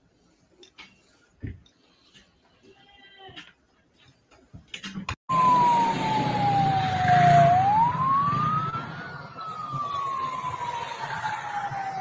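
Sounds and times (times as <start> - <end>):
emergency siren wailing: 5.3 - 12.0
low traffic rumble: 5.3 - 12.0.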